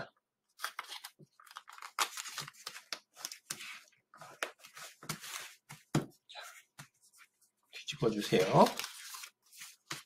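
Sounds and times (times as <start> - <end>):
paper crinkling and rustling: 0.6 - 6.0, 8.0 - 10.0.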